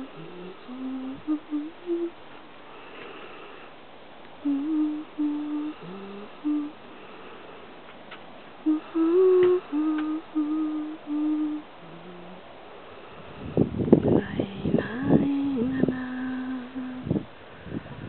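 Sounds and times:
person humming: 0.0 - 2.2, 4.4 - 6.9, 8.6 - 12.5, 14.1 - 17.2.

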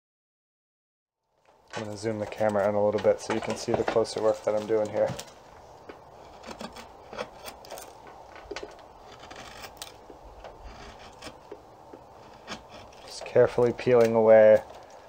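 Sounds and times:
draw knife scraping wood: 1.8 - 14.8.

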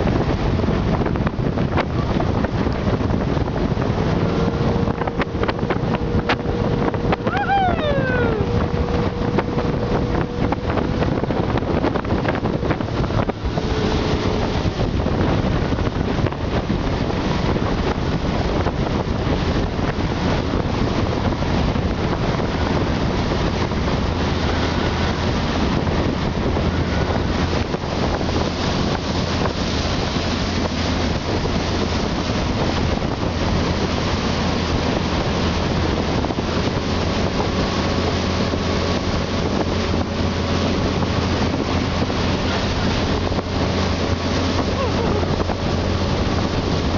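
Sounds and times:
motorboat engine hum: 0.0 - 46.9
rush of churning wake: 0.0 - 46.9
wind buffeting microphone: 0.0 - 46.9.

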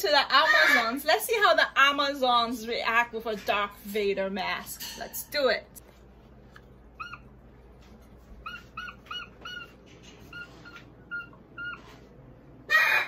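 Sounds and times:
parrot calling: 0.4 - 1.0, 6.9 - 7.4, 8.4 - 13.0.

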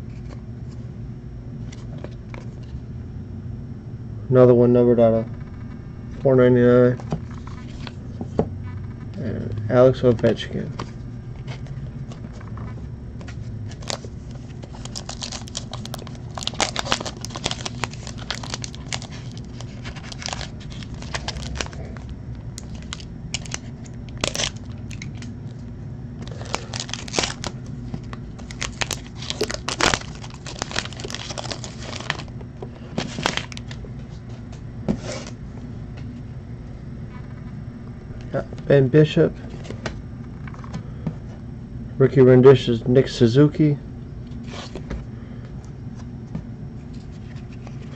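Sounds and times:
foil wrapper crinkling and tearing: 13.7 - 25.3, 26.2 - 32.4, 33.0 - 33.8.

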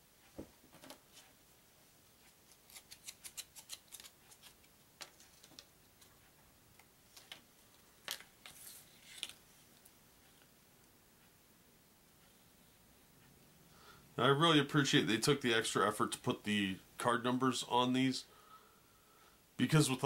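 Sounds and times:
cards rustling: 2.5 - 6.1, 7.1 - 9.4.

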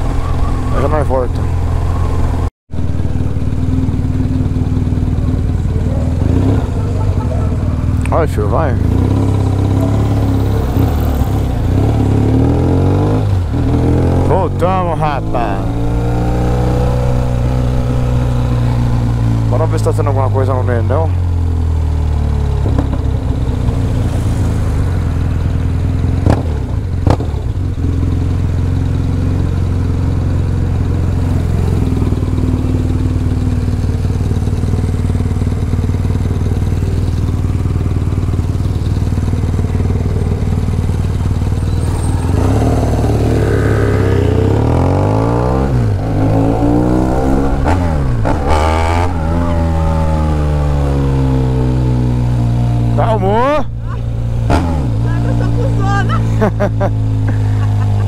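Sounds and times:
motorcycle engine idling: 0.0 - 12.5, 14.3 - 24.0, 24.7 - 44.7
motorcycle pulling away: 0.0 - 58.0.

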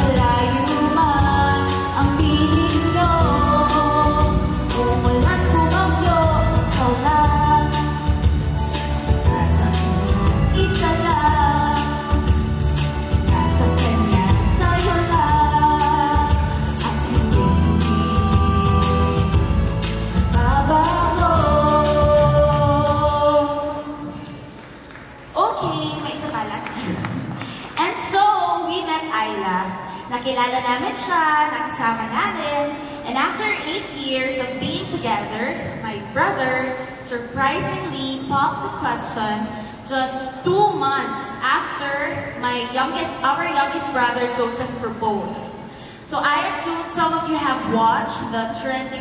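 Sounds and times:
woman singing into a microphone: 0.0 - 8.4, 9.1 - 24.2
instrumental backing music: 0.0 - 24.4.

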